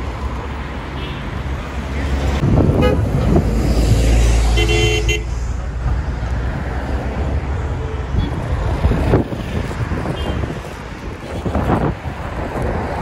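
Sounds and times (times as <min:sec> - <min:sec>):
heavy road traffic passing: 0:00.0 - 0:13.0
car horn toot: 0:02.8 - 0:03.0, 0:04.6 - 0:05.3, 0:10.1 - 0:10.5.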